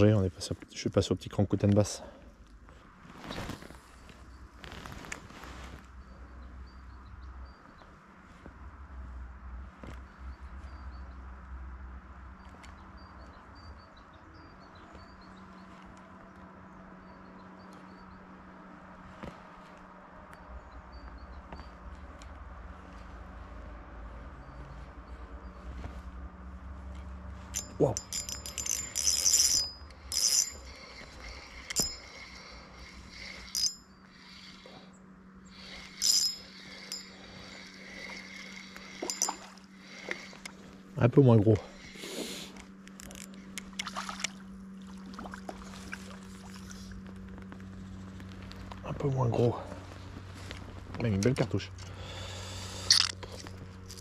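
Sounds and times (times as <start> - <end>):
small birds chirping: 12.3 - 18.5, 30.0 - 43.8
fishing reel drag ratcheting: 27.5 - 40.6, 52.0 - 54.0.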